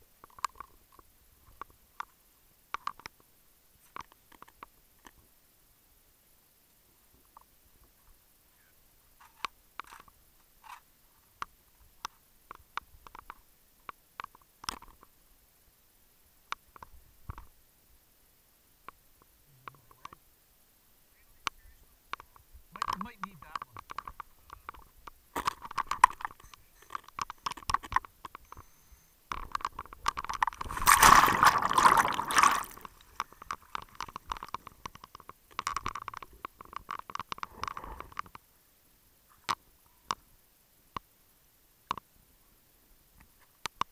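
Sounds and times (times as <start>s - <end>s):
faint irregular clicks and ticks: 0.0s - 43.9s
diver's breath bubbling underwater: 30.6s - 32.9s.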